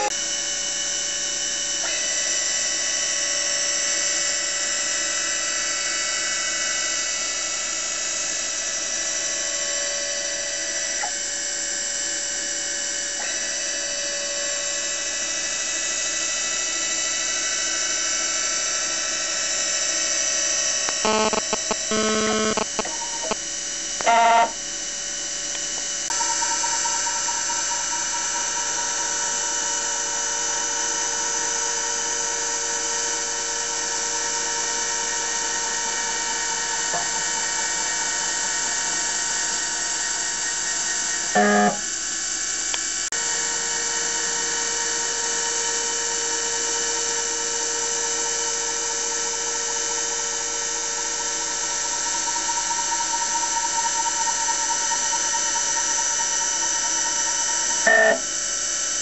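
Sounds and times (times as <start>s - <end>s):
engraving machine spindle whine: 0.0s - 59.0s.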